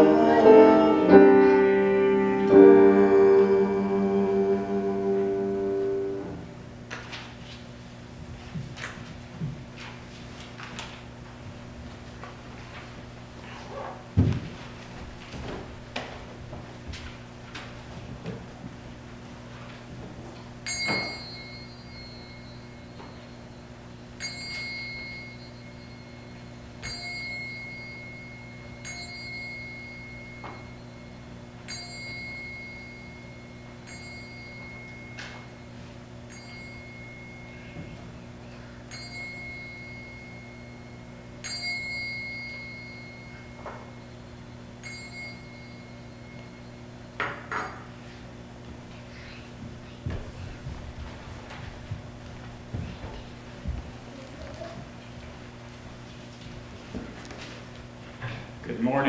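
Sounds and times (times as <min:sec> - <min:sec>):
bell ringing: 0:00.0 - 0:06.6, 0:20.6 - 0:47.9
steady low hum: 0:00.0 - 0:59.0
knocks and rustles: 0:13.8 - 0:18.8.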